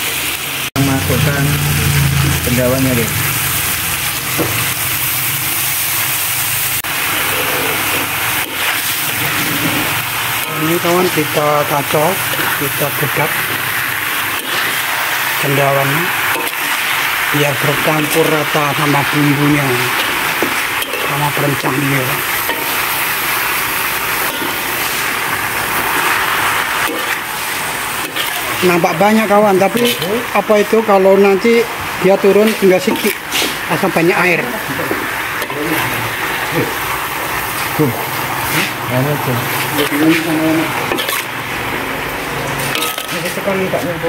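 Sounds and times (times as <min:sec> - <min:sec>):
vegetables sizzling in a wok: 0:00.0 - 0:44.0
low hum: 0:00.8 - 0:05.3
spatula stirring in wok: 0:06.6 - 0:15.4
metal spatula stirring: 0:07.1 - 0:23.4, 0:28.0 - 0:30.2, 0:39.6 - 0:41.3, 0:42.6 - 0:43.7.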